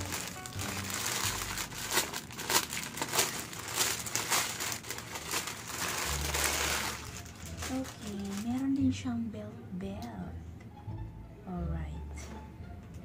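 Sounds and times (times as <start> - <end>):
plastic packaging crinkling: 0.0 - 8.9.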